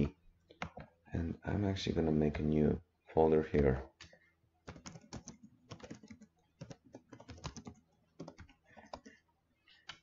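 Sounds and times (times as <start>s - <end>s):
typing on computer keyboard: 4.0s - 9.2s.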